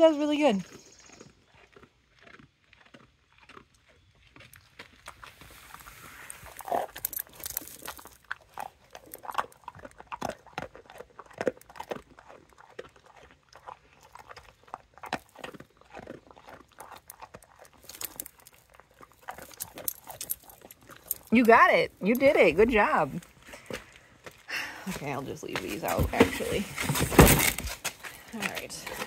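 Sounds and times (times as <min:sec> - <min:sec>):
dog sniffing and licking: 0:04.4 - 0:24.4.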